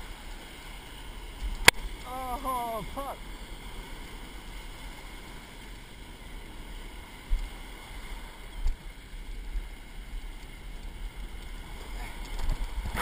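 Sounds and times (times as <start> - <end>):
ocean surf breaking: 0.0 - 13.0.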